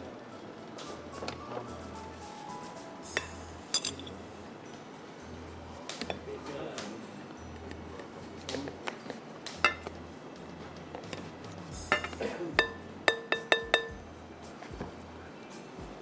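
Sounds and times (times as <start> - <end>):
spatula clinking against glass bowl: 3.1 - 4.3, 8.8 - 10.0, 11.8 - 14.1
ringing taps on glass bowl: 9.6 - 10.0, 11.9 - 14.1.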